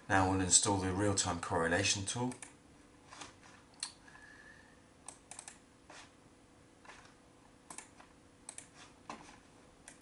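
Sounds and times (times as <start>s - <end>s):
low room hum: 0.0s - 10.0s
computer mouse and keys clicking: 2.2s - 4.0s, 5.0s - 6.1s, 6.8s - 10.0s.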